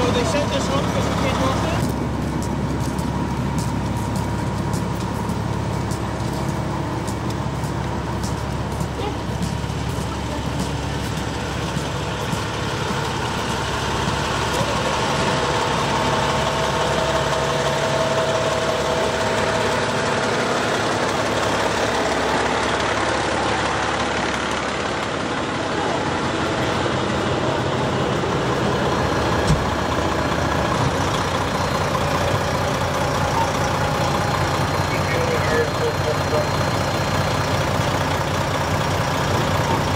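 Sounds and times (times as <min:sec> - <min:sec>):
truck engines idling: 0:00.0 - 0:39.9.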